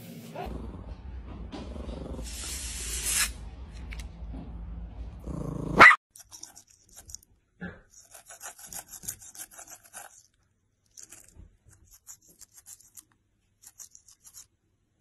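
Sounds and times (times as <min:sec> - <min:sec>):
air hissing out of balloon: 0:02.2 - 0:03.4
small dog barking: 0:05.7 - 0:06.0
toothbrush scrubbing teeth: 0:06.1 - 0:14.5.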